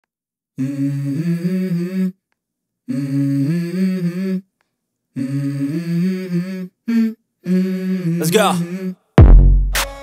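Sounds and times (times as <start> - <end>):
hummed vocal phrase: 0.6 - 2.2, 5.2 - 9.1.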